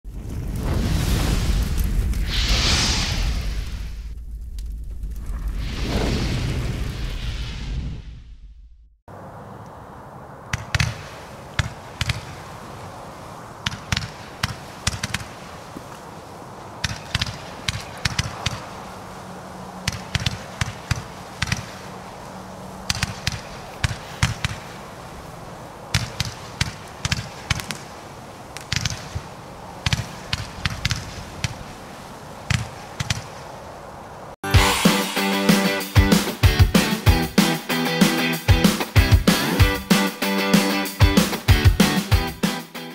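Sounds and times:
steady hiss: 0:00.7 - 0:04.2
firework shots thumping: 0:10.5 - 0:12.4, 0:13.6 - 0:15.4, 0:19.9 - 0:21.7, 0:22.9 - 0:24.7, 0:25.9 - 0:27.9, 0:28.6 - 0:31.6.

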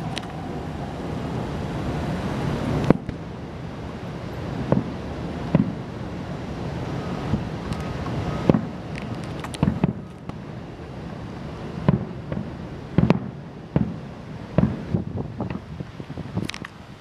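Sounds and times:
steady background rush: 0:00.0 - 0:15.7
distant fireworks bangs: 0:04.2 - 0:11.0, 0:11.6 - 0:15.9.

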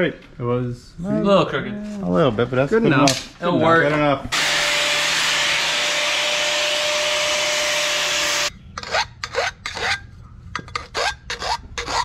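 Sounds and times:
harsh rasp on metal pipe: 0:10.7 - 0:12.0.

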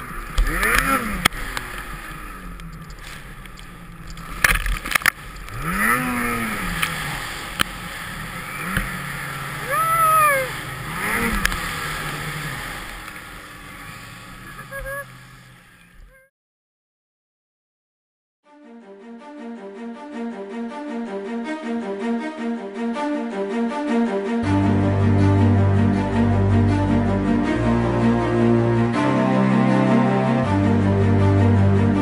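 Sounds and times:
snowmobile engines revving: 0:00.0 - 0:16.2, 0:24.4 - 0:32.0.

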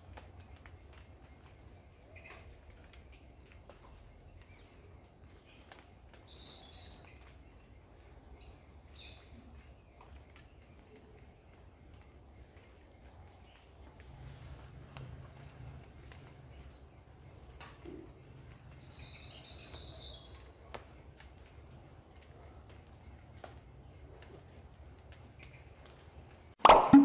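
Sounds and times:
bird chirps: 0:06.3 - 0:07.3, 0:18.8 - 0:20.6.

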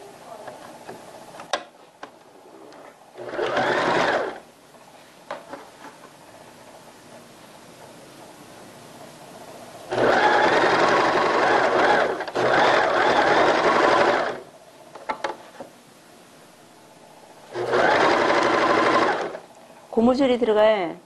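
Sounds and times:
sewing machine stitching: 0:03.2 - 0:04.4, 0:09.9 - 0:14.4, 0:17.5 - 0:19.4.

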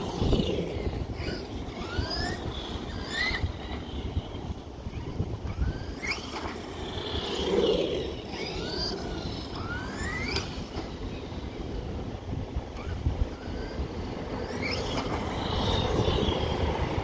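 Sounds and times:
electric motor whining: 0:00.0 - 0:12.0.

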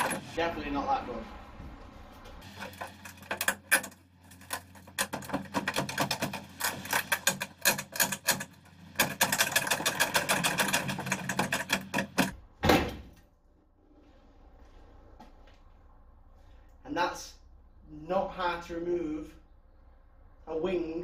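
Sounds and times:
rusty sheet metal cracking: 0:00.0 - 0:00.4, 0:02.4 - 0:12.4.

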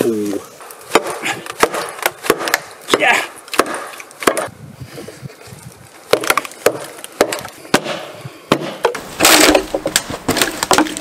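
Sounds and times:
log splitting open: 0:00.6 - 0:04.5, 0:06.0 - 0:11.0
hatchet striking log: 0:00.9 - 0:04.5, 0:06.1 - 0:11.0.

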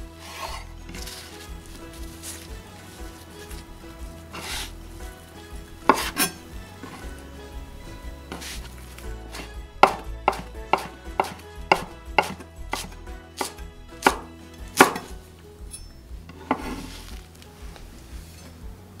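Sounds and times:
knife chopping on wooden board: 0:05.9 - 0:07.0, 0:09.3 - 0:15.1.

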